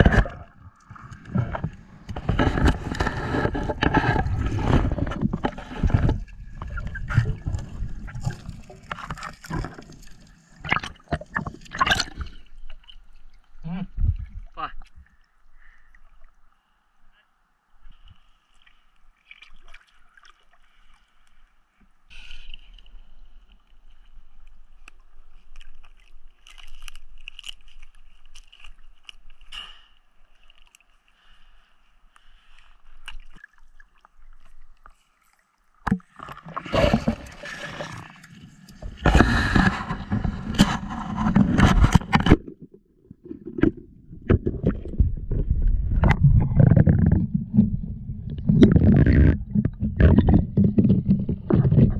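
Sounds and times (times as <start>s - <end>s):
muffled underwater rushing: 0.0s - 12.9s, 35.8s - 51.9s.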